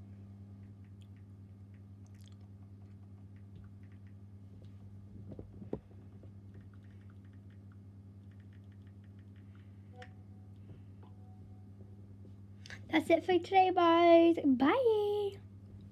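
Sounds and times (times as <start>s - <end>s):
low electrical hum: 0.0s - 15.9s
small clicks and taps: 0.6s - 10.7s.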